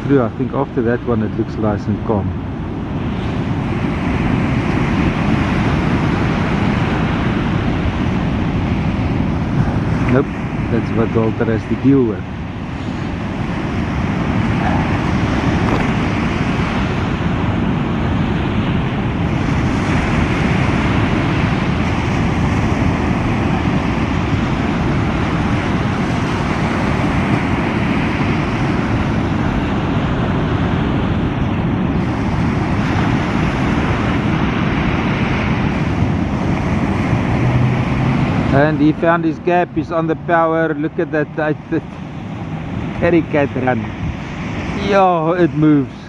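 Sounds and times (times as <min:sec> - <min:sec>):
breaking surf: 0:00.0 - 0:46.0
wind buffeting microphone: 0:00.0 - 0:46.0.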